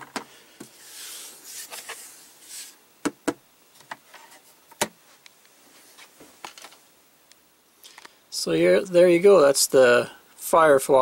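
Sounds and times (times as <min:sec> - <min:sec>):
rustle of handling: 0:00.6 - 0:02.8.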